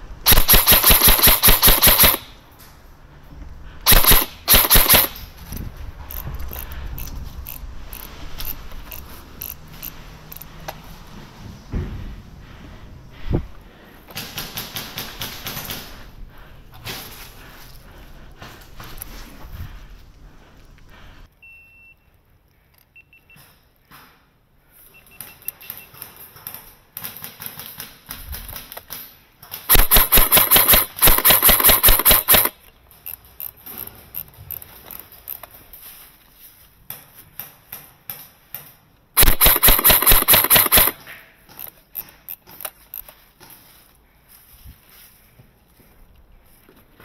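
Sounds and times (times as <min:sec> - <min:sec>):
airsoft rifle automatic bursts: 0:00.2 - 0:02.4, 0:03.8 - 0:05.2, 0:29.7 - 0:32.6, 0:39.2 - 0:41.0.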